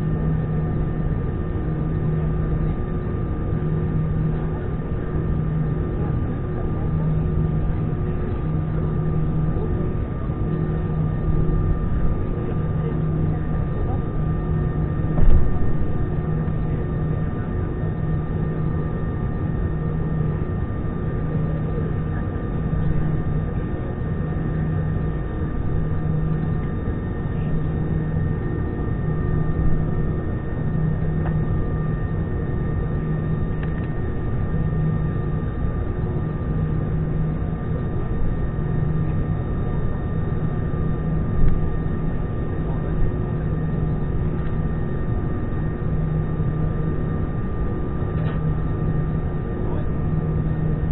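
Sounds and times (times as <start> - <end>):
airliner engines idling in cabin: 0.0 - 50.9
brief thump: 15.2 - 15.5.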